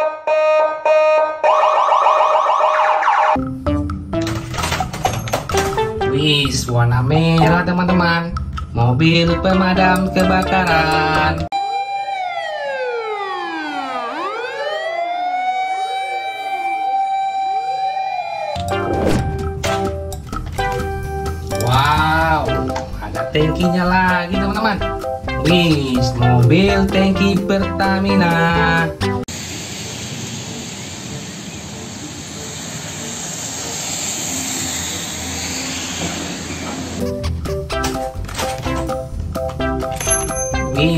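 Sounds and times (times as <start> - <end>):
fire engine siren wailing: 0.0 - 3.4, 11.4 - 19.9
truck engine hum: 18.6 - 25.4, 29.0 - 39.9
tyres hissing on wet asphalt: 29.3 - 37.0.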